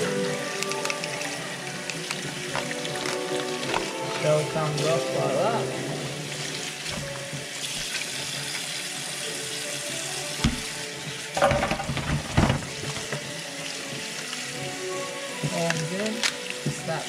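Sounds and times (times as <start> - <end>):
tap running into a steel sink: 10.4 - 13.3.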